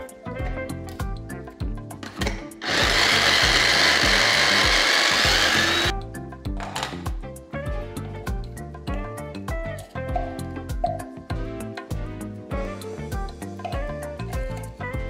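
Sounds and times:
background music with beat: 0:00.0 - 0:15.0
electric chopper running: 0:02.6 - 0:05.9.

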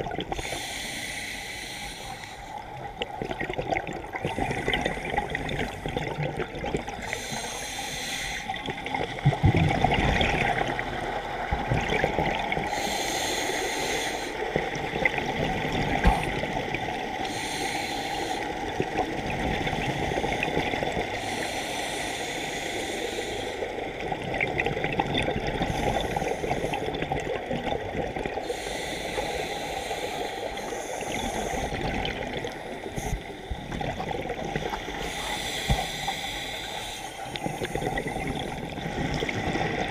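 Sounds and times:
exhaled air bubbling: 0:00.0 - 0:01.0, 0:02.6 - 0:13.2, 0:13.8 - 0:39.9
regulator inhale hiss: 0:00.3 - 0:02.8, 0:07.0 - 0:08.7, 0:12.6 - 0:14.6, 0:17.2 - 0:18.8, 0:21.0 - 0:24.0, 0:25.6 - 0:27.0, 0:28.4 - 0:33.8, 0:34.6 - 0:38.9.

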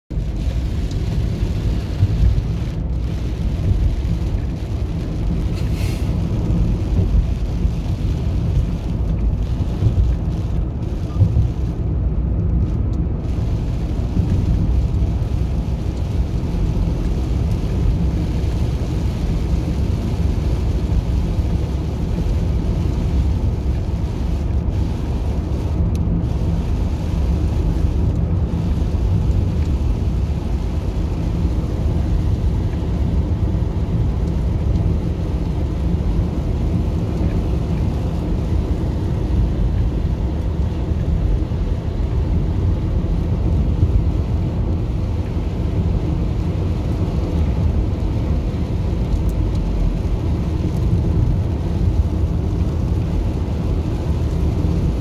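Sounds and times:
car engine and tyres rumbling: 0:00.0 - 0:55.0
rain hissing on car: 0:00.1 - 0:55.0.

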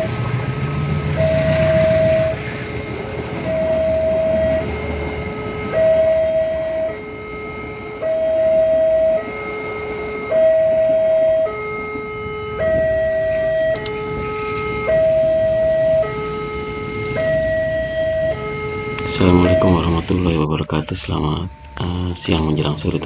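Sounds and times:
second alarm tone pattern: 0:00.0 - 0:00.3, 0:01.0 - 0:23.0
two-tone crossing alarm: 0:00.0 - 0:23.0
sharp click: 0:13.7 - 0:14.0.

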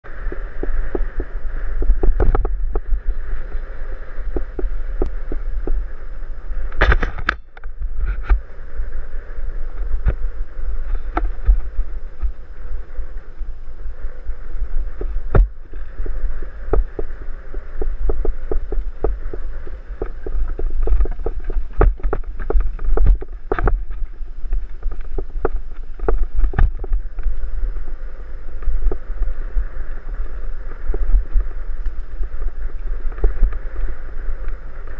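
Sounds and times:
wind buffeting microphone: 0:00.0 - 0:34.9
bike rattling over rough ground: 0:15.0 - 0:28.6.

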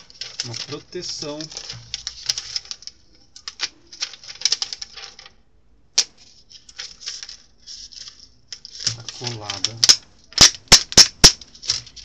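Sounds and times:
plastic keyboard clicking and crackling: 0:00.0 - 0:05.4, 0:08.1 - 0:12.0.

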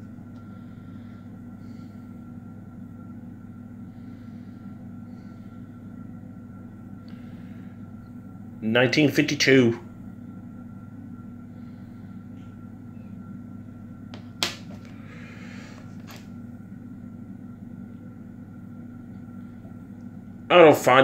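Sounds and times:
room hum: 0:00.0 - 0:21.0.

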